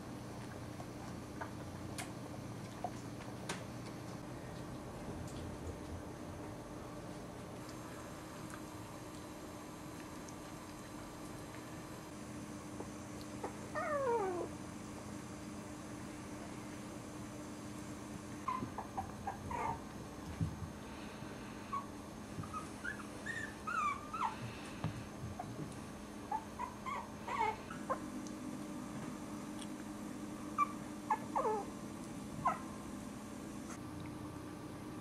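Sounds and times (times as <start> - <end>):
puppies whimpering: 12.8 - 14.5, 18.4 - 19.9, 21.7 - 24.6, 26.3 - 28.1, 30.6 - 31.8.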